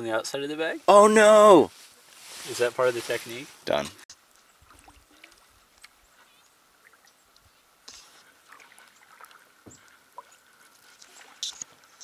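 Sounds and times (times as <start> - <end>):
paddle dips and drips: 3.8 - 12.0.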